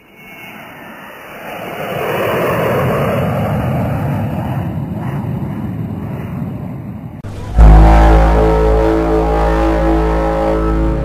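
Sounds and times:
loud rushing noise: 7.2s - 11.0s.

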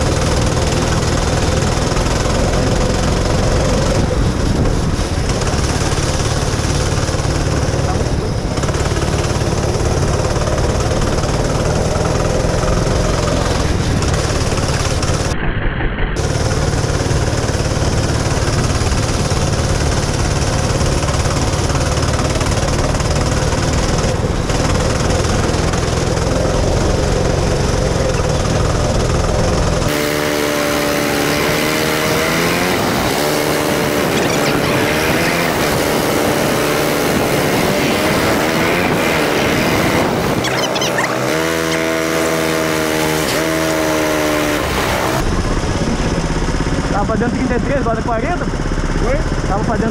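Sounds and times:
steady low rumble: 0.0s - 29.9s, 45.2s - 49.9s
go-kart engine racing: 0.0s - 49.9s.

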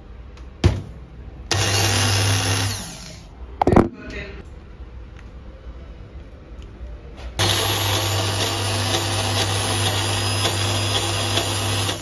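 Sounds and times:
electric blender running: 1.5s - 3.3s, 7.4s - 12.0s.

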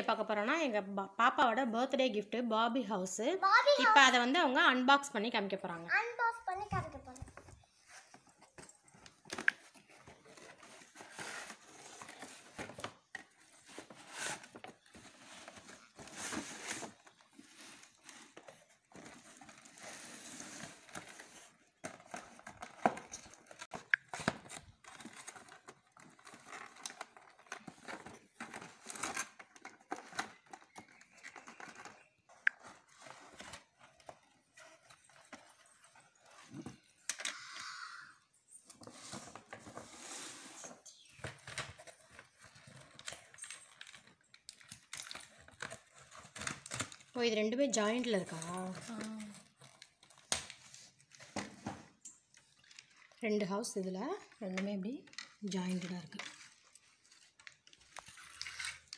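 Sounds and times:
packaging rustling and tearing: 7.9s - 36.8s, 38.8s - 47.2s.

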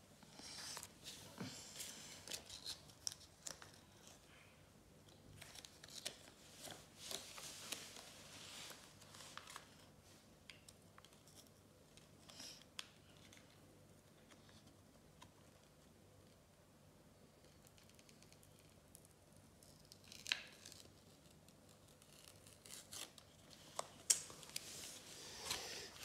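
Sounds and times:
sticker backing being peeled: 1.7s - 4.2s, 5.1s - 9.9s, 17.4s - 26.0s.

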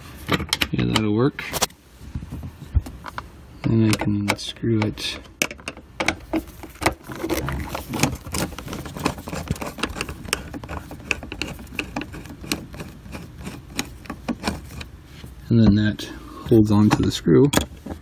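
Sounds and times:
screwdriver clicks and scrapes: 3.8s - 14.9s.

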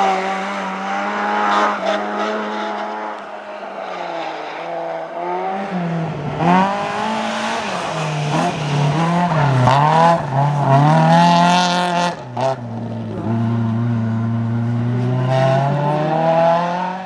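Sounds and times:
car engine revving hard: 5.2s - 17.0s.

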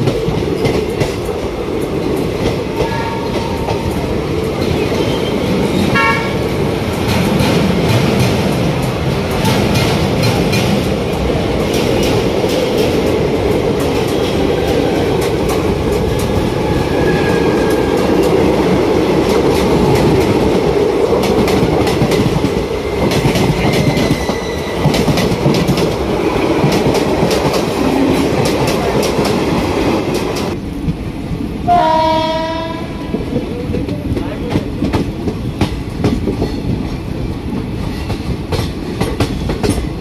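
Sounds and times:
train wheels clicking over rail joints: 0.0s - 31.1s, 33.1s - 40.0s
train rumble: 0.0s - 40.0s
train horn blast: 2.8s - 3.6s, 5.9s - 6.4s, 31.7s - 33.1s.

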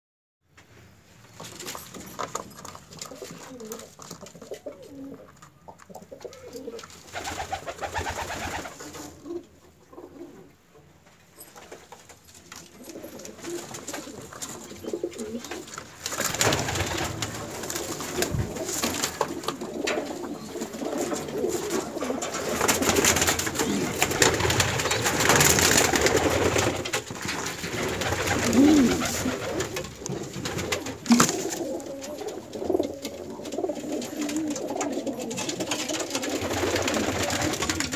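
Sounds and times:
pigeons cooing: 2.9s - 10.6s, 12.8s - 37.9s
rustling and scuffling: 11.0s - 37.9s.

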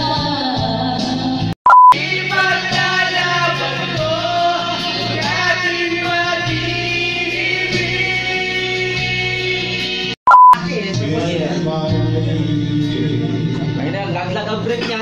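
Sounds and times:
karaoke backing track: 0.0s - 15.0s
man singing a love ballad: 2.0s - 14.0s.

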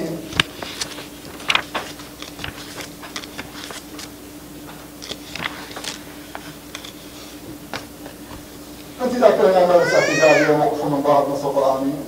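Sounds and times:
steady hum: 0.0s - 12.0s
paper pages rustling: 0.2s - 9.4s.

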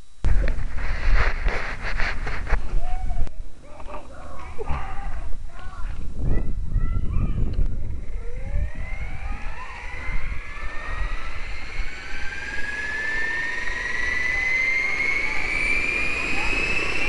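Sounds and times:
rc helicopter motor whine rising: 7.4s - 17.0s.

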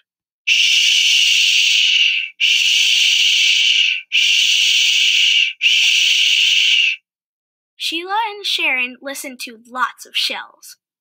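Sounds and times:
shushing hiss: 0.5s - 7.0s.

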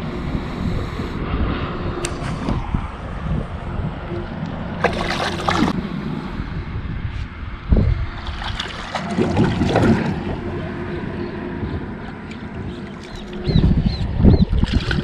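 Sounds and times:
wind buffeting microphone: 0.0s - 15.0s
water splashing: 4.8s - 5.8s, 8.2s - 10.7s, 14.4s - 15.0s.

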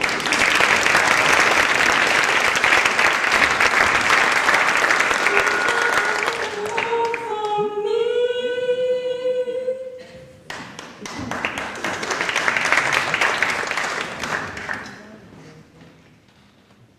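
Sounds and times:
audience applause: 0.0s - 7.2s, 10.5s - 15.0s.

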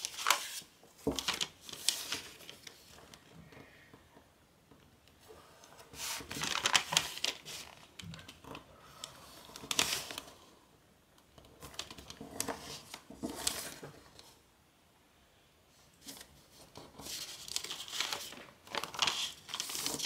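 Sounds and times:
paper crinkling: 0.0s - 3.4s, 5.8s - 8.6s, 9.4s - 10.5s, 11.4s - 14.3s, 16.0s - 20.0s.

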